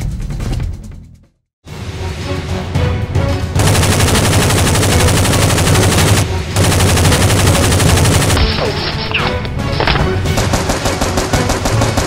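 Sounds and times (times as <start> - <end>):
automatic gunfire: 3.6 - 8.6, 9.9 - 12.0.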